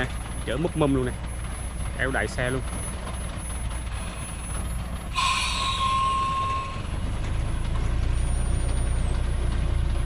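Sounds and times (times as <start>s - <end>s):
diesel truck engine running: 0.0s - 10.0s
brakes squealing with hiss: 4.0s - 7.1s.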